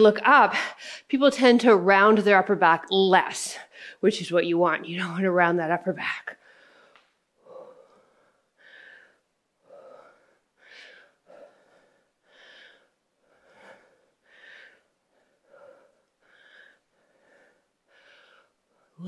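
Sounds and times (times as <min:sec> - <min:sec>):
woman breathing hard: 0:06.4 - 0:19.0.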